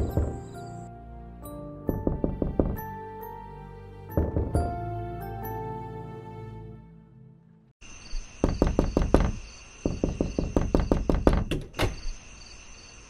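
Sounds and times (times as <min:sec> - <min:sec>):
background music: 0:00.0 - 0:07.7
fast knocking on a door: 0:01.9 - 0:03.0, 0:04.2 - 0:04.8, 0:08.4 - 0:11.8.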